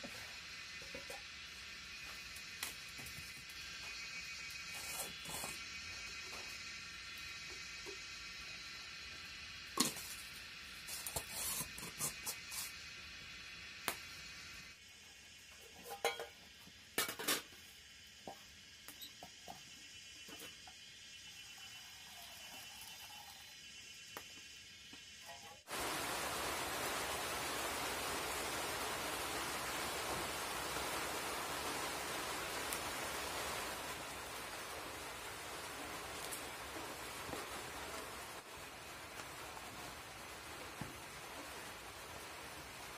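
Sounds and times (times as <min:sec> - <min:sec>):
loud even hiss: 0:00.0 - 0:42.9
cooking pots and utensils clinking: 0:15.6 - 0:17.6.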